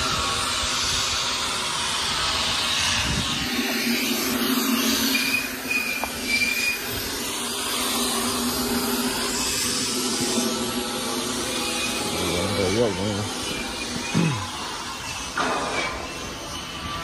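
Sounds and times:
wind rumbling on microphone: 0.0 - 10.9
low mechanical hum: 0.0 - 17.0.

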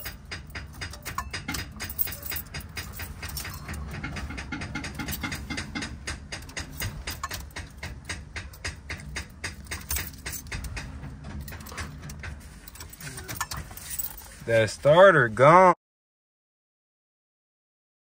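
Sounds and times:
rapid starter clicking: 0.0 - 13.8.

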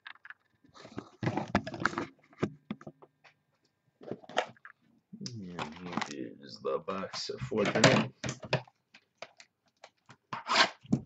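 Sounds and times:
man talking: 5.2 - 8.2.

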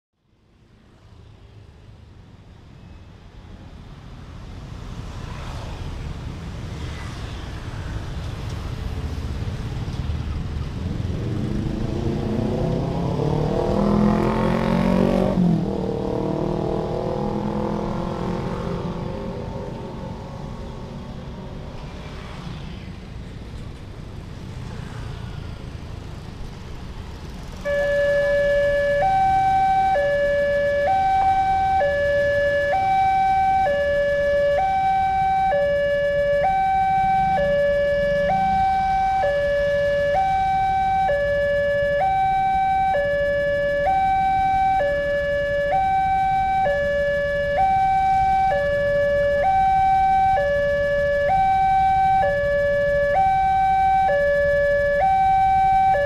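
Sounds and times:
light road traffic: 0.2 - 56.0
motorcycles passing: 4.6 - 56.0
two-tone electronic warning alarm: 27.6 - 56.0.

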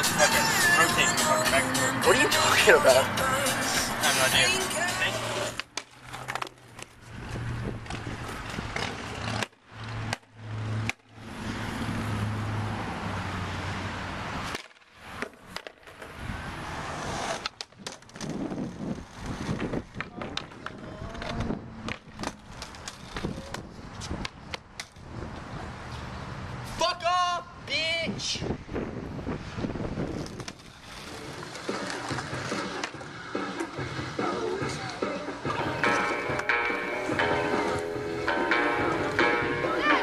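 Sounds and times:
skateboard wheels rolling on asphalt: 0.0 - 26.9, 28.5 - 40.0
skateboard clacks: 4.4 - 11.2, 14.4 - 16.2, 17.1 - 25.0, 30.2 - 40.0.

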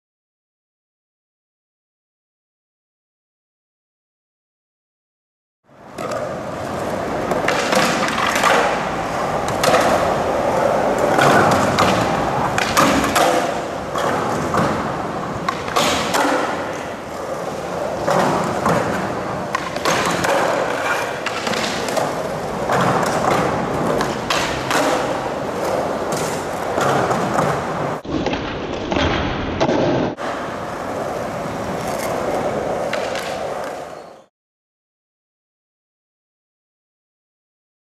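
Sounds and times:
skateboard wheels rolling on concrete: 5.7 - 34.3
skateboard clacks and thuds: 5.9 - 34.3.

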